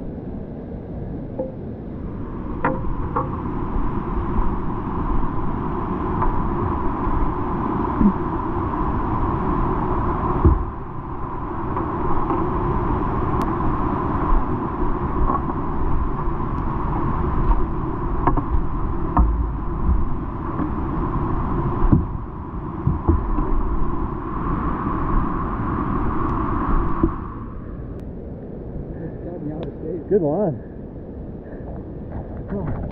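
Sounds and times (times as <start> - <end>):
knocks and thumps on camera: 10.4 - 10.7, 18.2 - 20.1, 22.8 - 23.5.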